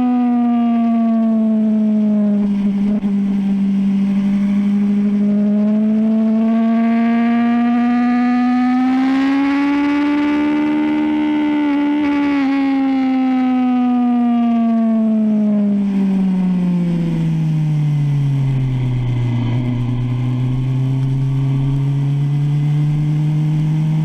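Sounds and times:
motorcycle engine at high revs: 0.0s - 24.0s.

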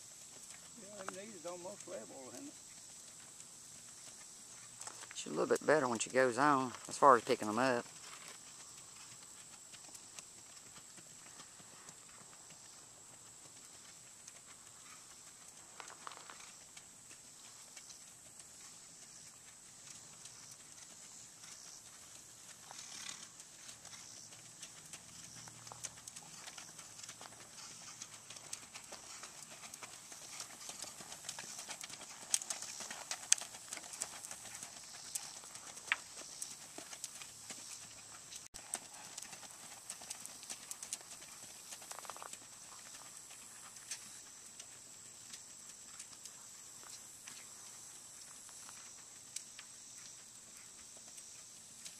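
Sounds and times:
steady high hiss: 0.0s - 10.5s
horse hoofbeats on turf: 0.0s - 51.9s.

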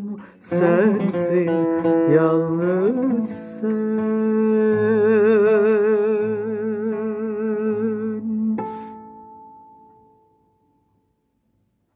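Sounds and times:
man singing with vibrato: 0.0s - 9.0s.

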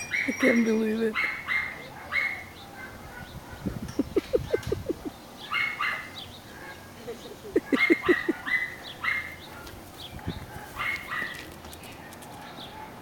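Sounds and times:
birds chirping: 0.0s - 13.0s
dog yipping: 1.1s - 6.8s, 7.6s - 9.7s, 10.5s - 11.4s.

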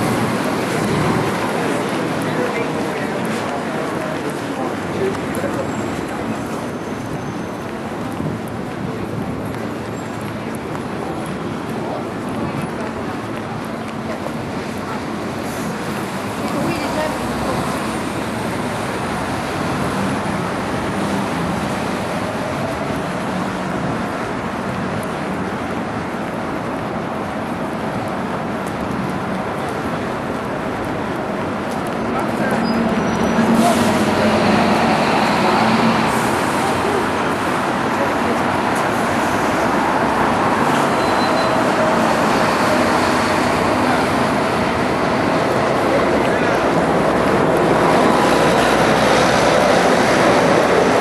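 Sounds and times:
passing vehicles: 0.0s - 51.0s
road traffic: 0.0s - 51.0s.

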